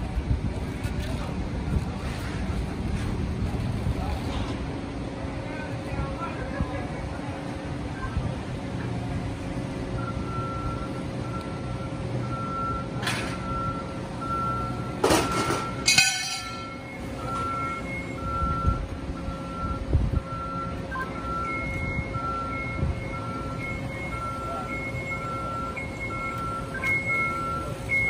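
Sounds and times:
low engine rumble: 0:00.0 - 0:28.0
backup alarm beeping: 0:09.9 - 0:28.0.

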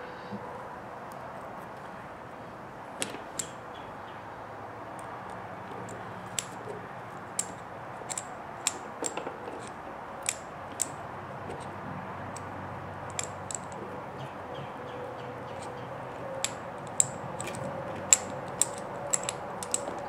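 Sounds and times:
small metal parts clicking: 0:03.0 - 0:03.6, 0:05.0 - 0:13.9, 0:15.5 - 0:20.0.

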